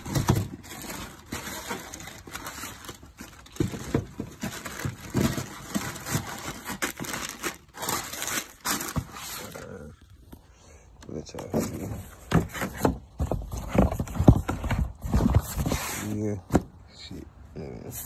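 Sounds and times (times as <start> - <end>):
tissue paper crinkling: 0.0 - 9.9.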